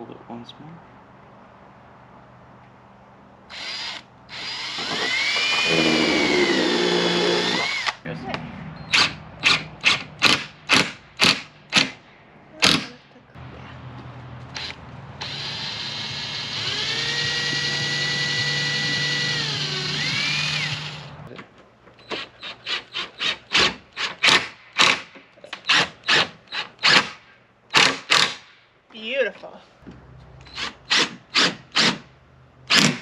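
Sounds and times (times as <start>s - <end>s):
cordless drill motor whining: 3.5s - 8.0s, 14.6s - 21.2s.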